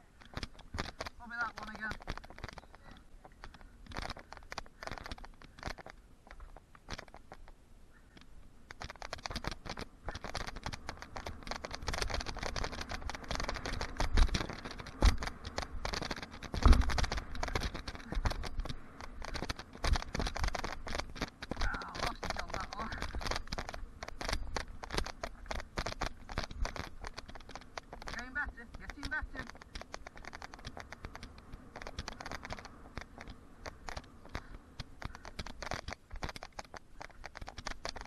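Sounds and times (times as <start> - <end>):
bike rattling: 0.0 - 38.0
bike tyres crunching on dirt: 8.4 - 38.0.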